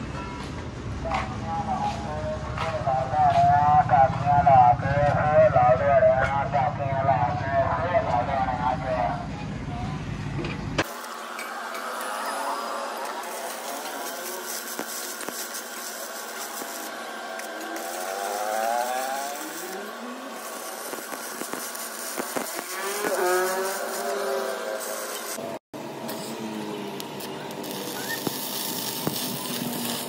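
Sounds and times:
arc welding crackling and sizzling: 10.8s - 30.0s.

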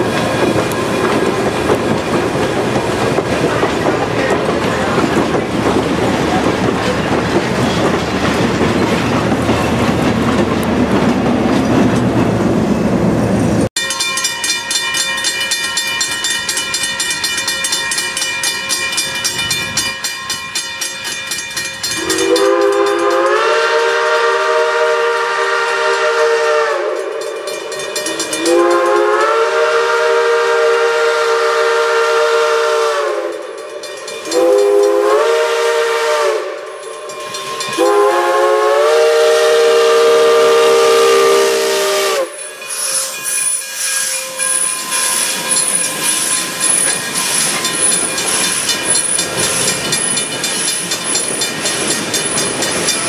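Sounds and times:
crossing bell ringing: 0.0s - 7.9s, 13.7s - 30.0s, 32.7s - 53.0s
steam locomotive whistle blasts: 21.9s - 33.6s, 34.3s - 49.8s.

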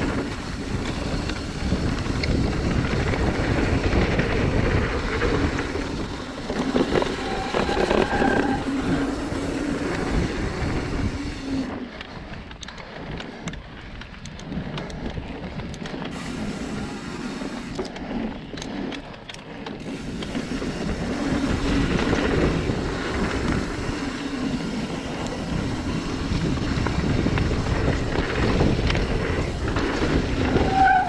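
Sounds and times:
bike rattling: 0.0s - 31.0s
wind buffeting microphone: 0.0s - 31.0s
tyres rumbling on dirt: 15.4s - 31.0s.

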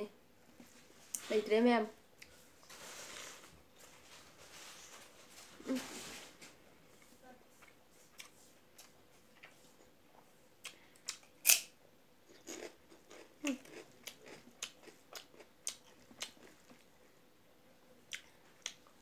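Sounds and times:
crunching crisp food: 12.3s - 16.9s.

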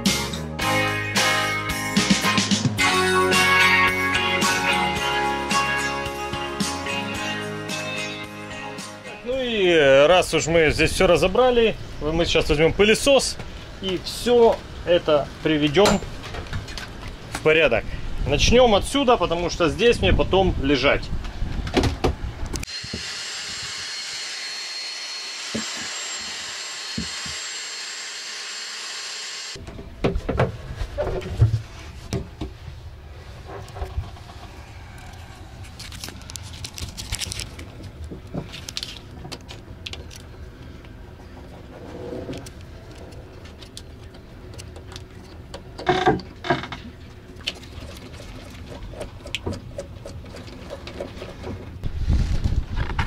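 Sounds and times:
vacuum cleaner whine: 22.7s - 29.6s.

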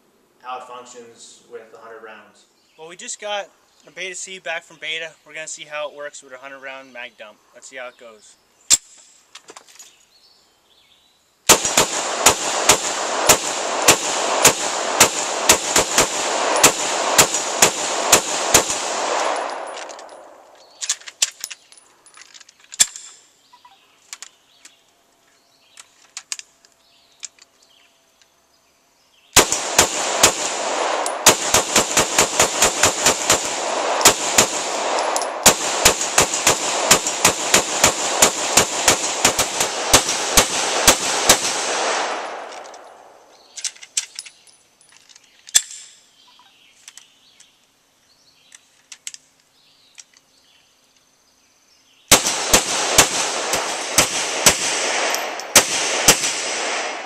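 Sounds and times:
pistol shots with echo: 11.5s - 20.5s, 29.4s - 43.2s, 52.1s - 57.0s.

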